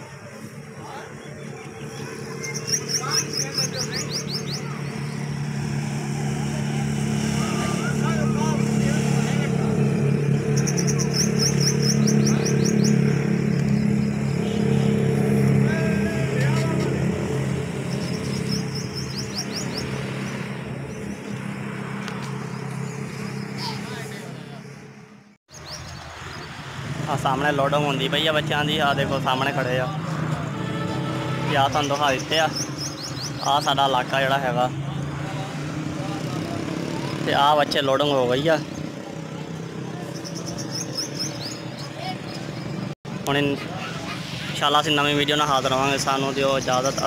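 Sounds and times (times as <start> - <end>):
vehicle engine running: 0.0 - 43.7
distant traffic rumble: 0.0 - 47.0
high rising bird chirps: 0.9 - 6.0, 10.0 - 15.2, 16.6 - 26.6, 31.6 - 34.1, 40.0 - 42.9.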